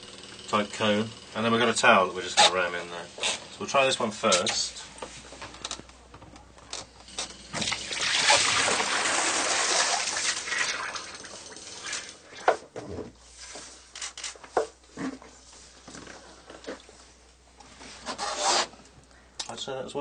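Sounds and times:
water spraying and splashing: 7.6 - 11.2.

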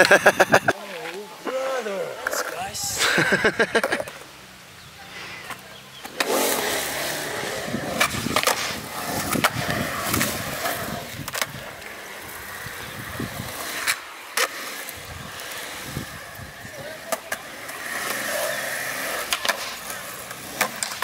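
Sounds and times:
skateboard wheels rolling on concrete: 0.0 - 21.0
skateboard clacks: 3.7 - 4.3, 5.4 - 21.0.

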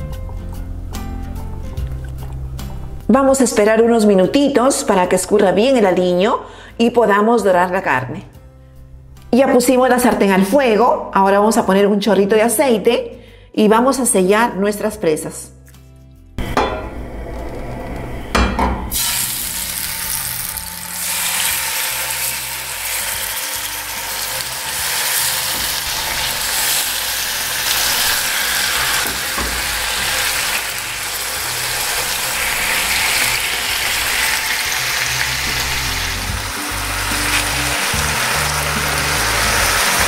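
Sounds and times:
meat sizzling in frying pan: 18.9 - 40.0
meat knocking into pan: 28.9 - 30.1.

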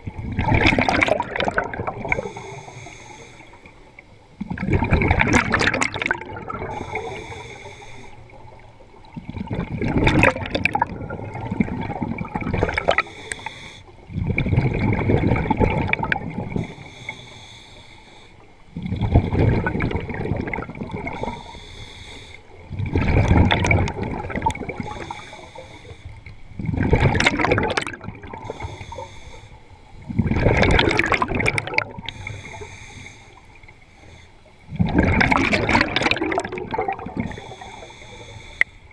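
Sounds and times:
gurgling exhaust bubbles: 0.0 - 2.4, 4.4 - 7.1, 9.1 - 13.0, 14.1 - 16.7, 18.7 - 21.4, 22.7 - 25.1, 26.6 - 28.5, 30.1 - 32.2, 34.7 - 37.5
regulator inhalation hiss: 2.1 - 3.7, 6.7 - 8.3, 12.8 - 14.0, 16.6 - 18.5, 21.2 - 22.5, 24.8 - 26.2, 28.4 - 29.8, 32.1 - 34.6, 37.3 - 38.9.

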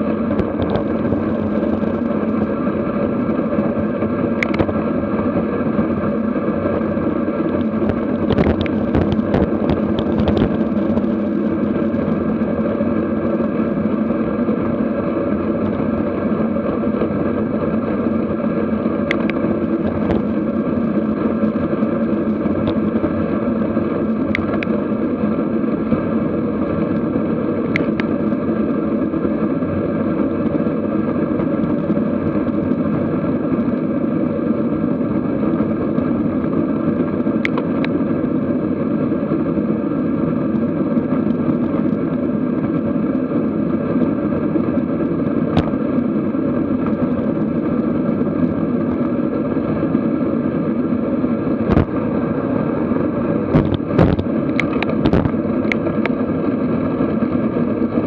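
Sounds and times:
wind and road rush: 0.0 - 58.0
sharp clicks: 19.1 - 19.4.

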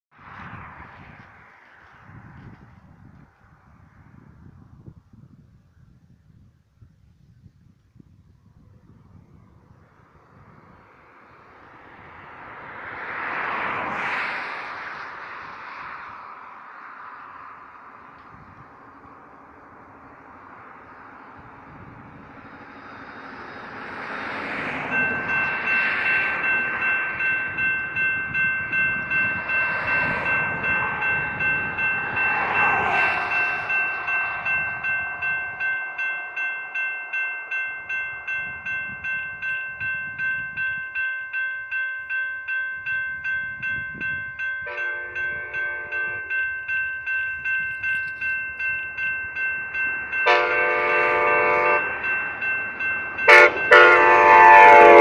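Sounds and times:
rushing noise: 10.5 - 41.4
crossing bell dinging: 17.2 - 55.0
train horn blast: 44.7 - 46.3, 50.2 - 52.0, 53.3 - 55.0.

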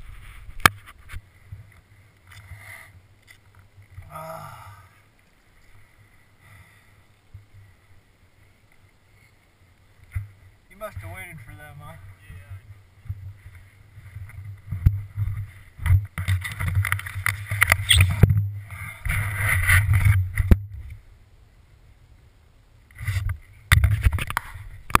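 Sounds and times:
camera handling noise: 16.2 - 18.3.

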